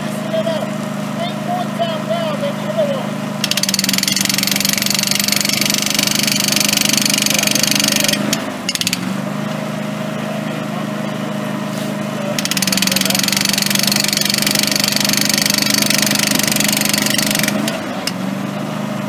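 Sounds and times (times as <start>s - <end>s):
engine running steadily: 0.0s - 19.0s
jackhammer hammering: 3.4s - 9.9s, 12.2s - 18.4s.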